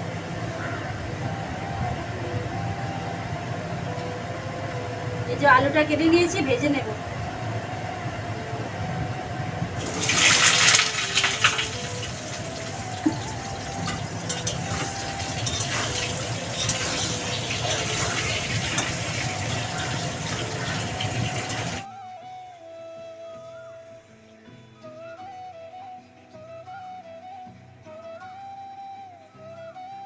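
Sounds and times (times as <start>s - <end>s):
potatoes sizzling in hot oil: 9.8s - 21.9s.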